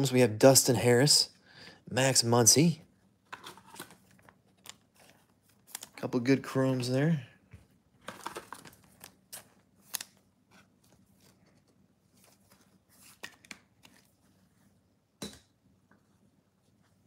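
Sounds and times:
cards and wrappers rustling: 8.0 - 14.5.

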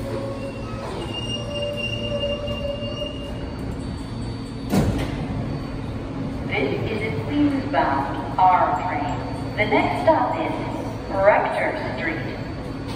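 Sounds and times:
high squealing of wheels and brakes: 0.0 - 6.0
subway train braking: 0.0 - 12.9.

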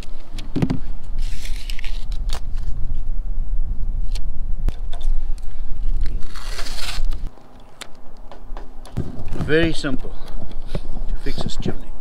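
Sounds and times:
tape ripping off roll: 6.0 - 7.3.

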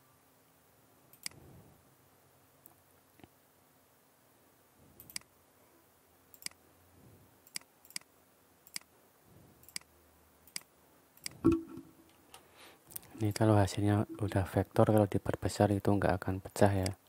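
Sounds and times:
computer mouse clicking: 1.1 - 1.4, 5.0 - 5.3, 6.3 - 6.6, 7.4 - 8.9, 9.6 - 11.7.

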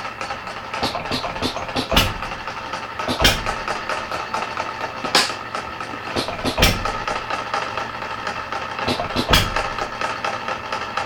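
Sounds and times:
engine light regular ticking: 0.2 - 7.5
engine firing bangs: 0.7 - 7.5, 8.8 - 10.0.

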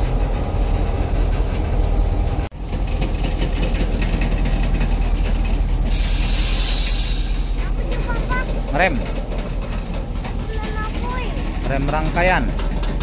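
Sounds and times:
freight train rumbling on rails: 0.0 - 13.0
loud high hiss: 5.9 - 7.6.

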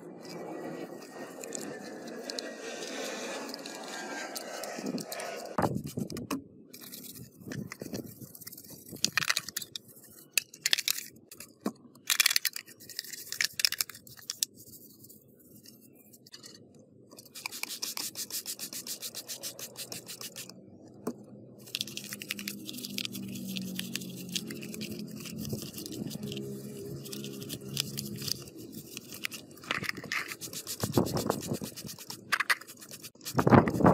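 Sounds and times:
brush scrubbing wet plastic: 17.2 - 20.5, 21.6 - 33.9.

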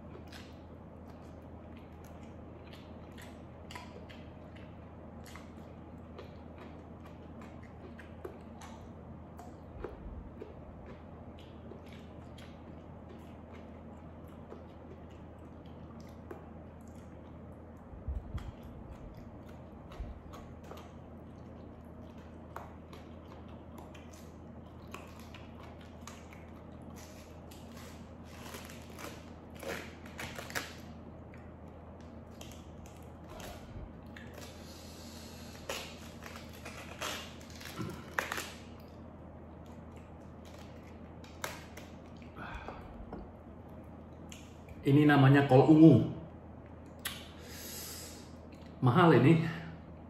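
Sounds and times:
chewing: 0.0 - 44.8
low steady hum: 0.0 - 50.0
cabbage leaves snapping and tearing: 18.4 - 34.8, 35.4 - 39.0, 39.6 - 42.3.

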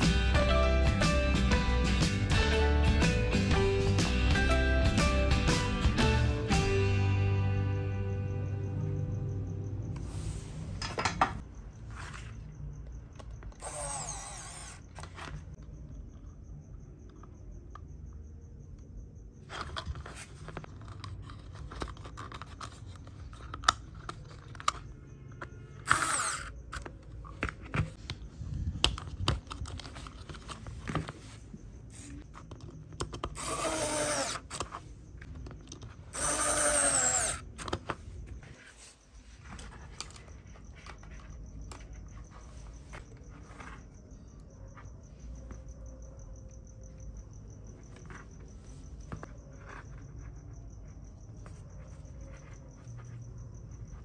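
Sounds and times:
electric screwdriver whirring: 13.6 - 15.0, 25.8 - 26.5, 33.3 - 34.6, 36.1 - 37.5.

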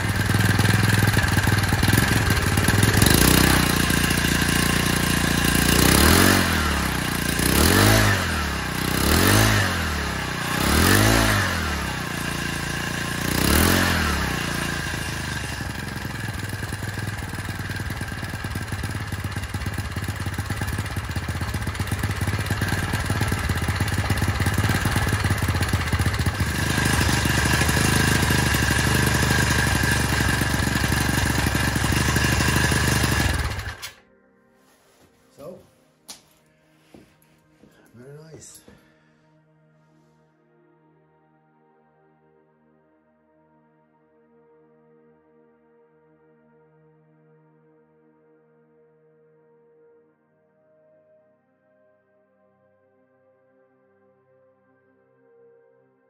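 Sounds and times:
outboard motor revving and idling: 0.0 - 33.9.

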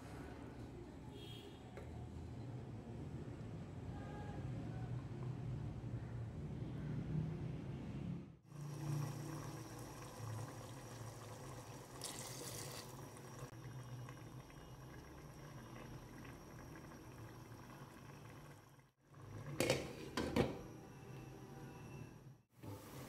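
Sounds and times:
pot bubbling on gas stove: 8.4 - 21.1.

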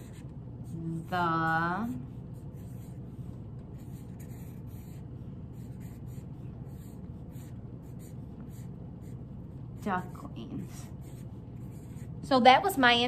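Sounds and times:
marker scratching on paper: 0.0 - 12.3
low room hum: 0.0 - 13.0.

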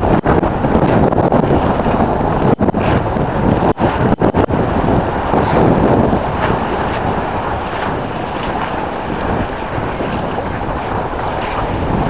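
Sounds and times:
sea rushing along hull: 0.0 - 12.0
wind buffeting microphone: 0.0 - 12.0.

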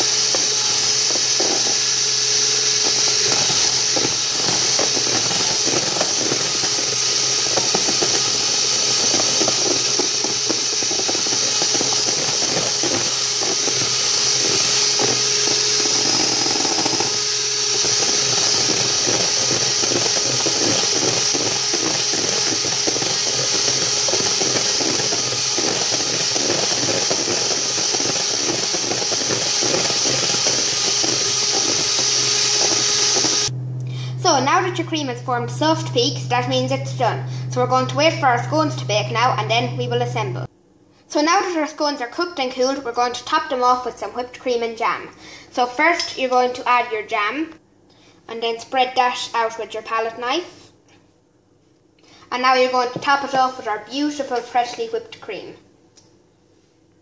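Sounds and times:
electric hand mixer running: 0.0 - 40.5.

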